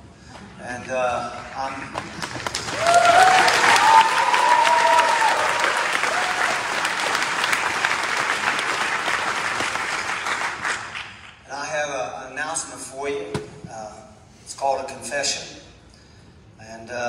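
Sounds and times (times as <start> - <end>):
congregation applauding: 1.3 - 11.4.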